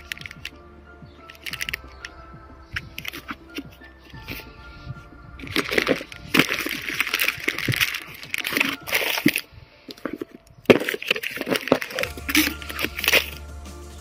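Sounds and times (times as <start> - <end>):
plastic wrappers crinkling: 0.0 - 0.6, 1.2 - 2.2, 2.8 - 4.5, 5.4 - 13.4
cardboard rustling and scraping: 2.8 - 13.4.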